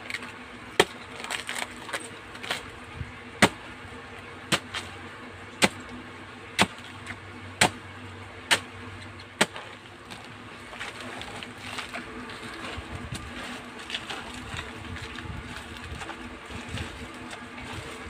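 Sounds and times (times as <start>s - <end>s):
machete chopping banana trunk: 0.8s - 2.7s, 3.4s - 3.7s, 4.5s - 5.0s, 5.6s - 7.9s, 8.5s - 12.0s.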